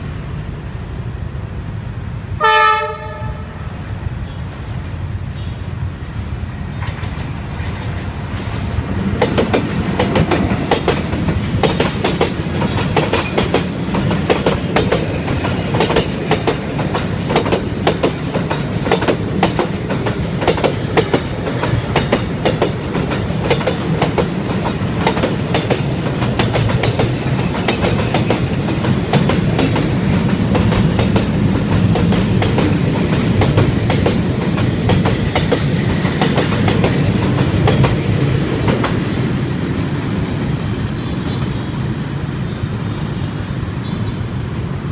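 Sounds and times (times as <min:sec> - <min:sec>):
locomotive passing: 0:05.8 - 0:43.2
train wheels clattering over rail joints: 0:06.8 - 0:39.2.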